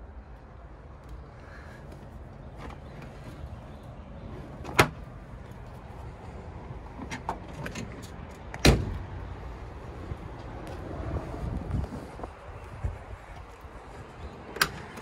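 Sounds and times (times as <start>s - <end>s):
cab door shutting thud: 4.6s - 5.0s, 8.6s - 9.0s.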